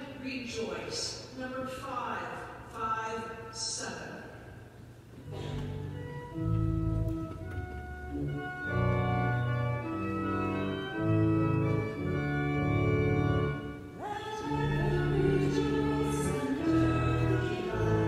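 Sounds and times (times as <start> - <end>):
church organ chords: 5.2 - 18.0
congregation singing: 14.0 - 18.0.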